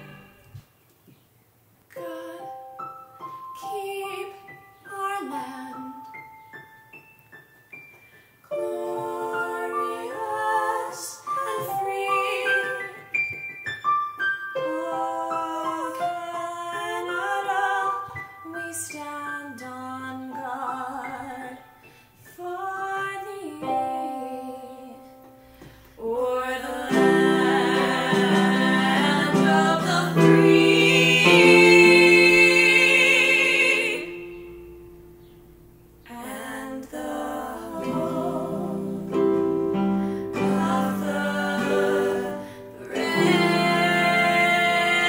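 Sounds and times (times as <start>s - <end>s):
woman singing: 2.0s - 2.9s, 3.6s - 6.2s, 8.5s - 13.2s, 14.6s - 21.7s, 22.3s - 25.2s, 26.0s - 34.5s, 36.1s - 39.3s, 40.3s - 45.0s.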